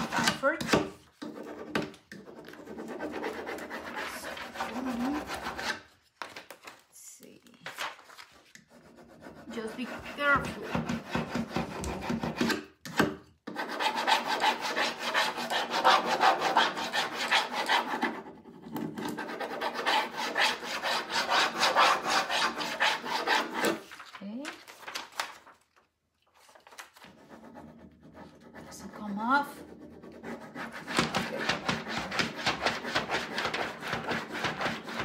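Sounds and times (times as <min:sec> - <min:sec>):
rubbing strokes on plastic sheet: 0:02.3 - 0:05.9, 0:27.1 - 0:35.0.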